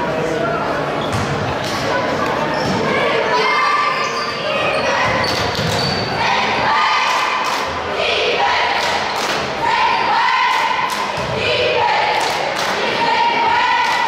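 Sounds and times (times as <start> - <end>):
shouting voices: 2.8 - 14.0.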